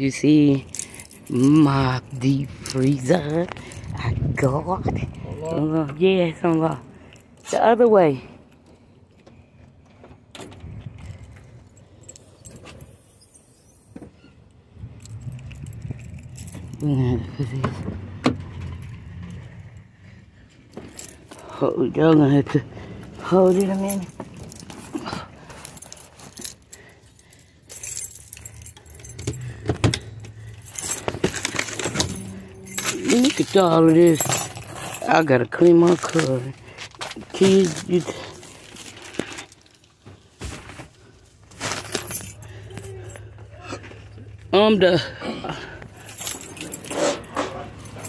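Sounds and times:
small metal objects jingling: 0.1s - 7.8s, 10.7s - 13.9s, 14.8s - 17.8s, 18.5s - 21.9s, 23.0s - 40.0s, 41.5s - 48.0s
low outdoor rumble: 14.3s - 40.3s, 40.9s - 48.0s
rustling handling noise: 23.2s - 44.5s, 45.8s - 48.0s.

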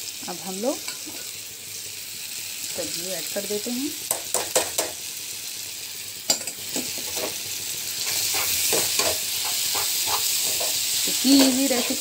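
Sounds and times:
food sizzling in a pan: 0.0s - 12.0s
utensil knocking against pan: 8.7s - 10.7s.

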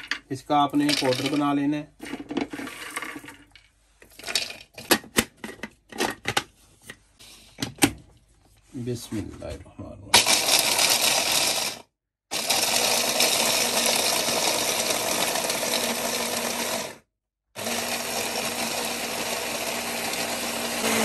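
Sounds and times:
hand blender grinding nuts: 10.2s - 21.0s.

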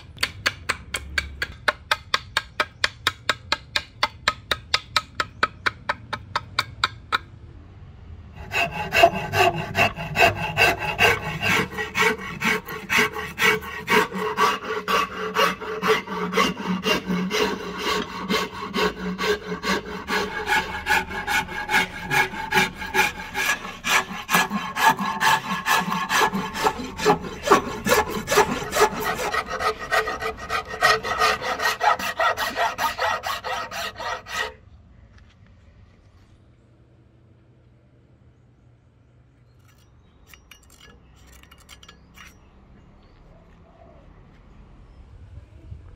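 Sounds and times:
hand file scraping: 8.4s - 34.6s.

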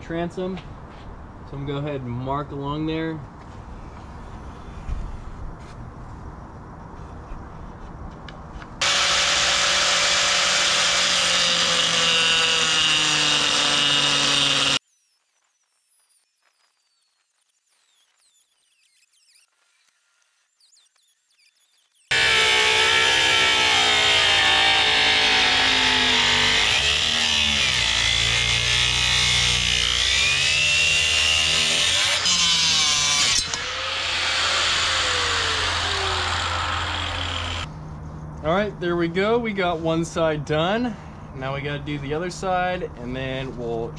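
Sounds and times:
angle grinder cutting wood: 8.8s - 14.8s, 22.1s - 37.7s
grinder disc winding down whine: 8.8s - 17.1s, 22.0s - 37.7s.

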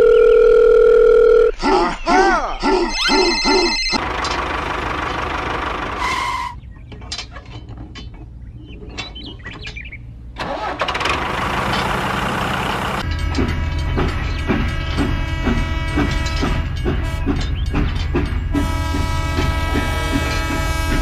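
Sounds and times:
toy tractor engine sound: 2.6s - 6.5s, 10.4s - 13.1s
steady train-like humming: 4.0s - 21.0s.

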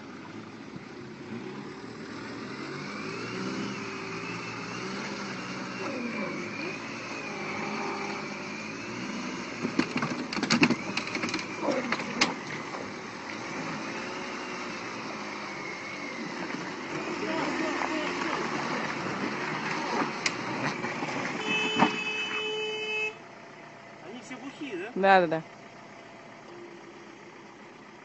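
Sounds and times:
car engines revving: 0.0s - 28.0s
sharp knocks and cracks: 9.6s - 12.4s.

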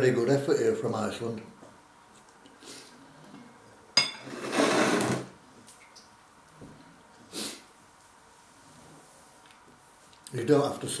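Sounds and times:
metal spoon clinking on bowl: 4.0s - 4.3s.

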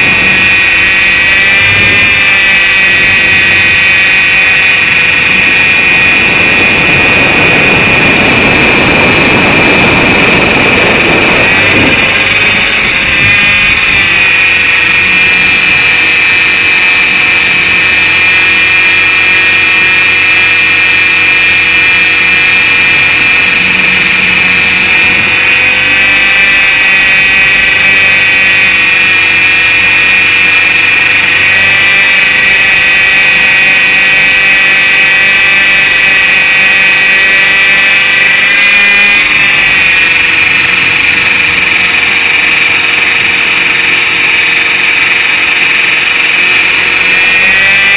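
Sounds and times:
rc helicopter motor whine: 0.0s - 47.9s
rotor whir: 0.0s - 47.9s.

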